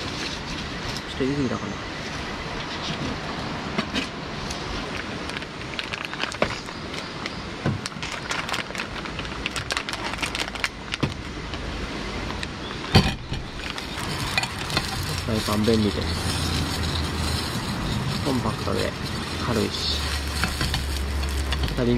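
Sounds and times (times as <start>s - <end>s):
plastic packet crinkling: 4.9s - 11.3s, 13.6s - 21.9s.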